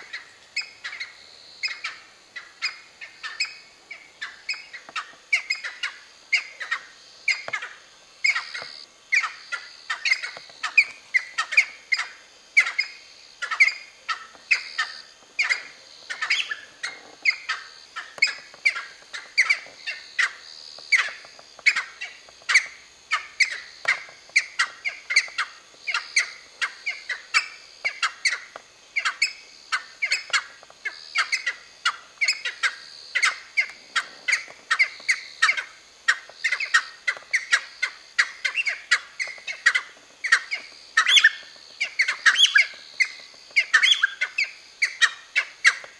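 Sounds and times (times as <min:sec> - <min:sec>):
pheasants calling: 0:00.0 - 0:45.9
steady high hiss: 0:00.0 - 0:45.9.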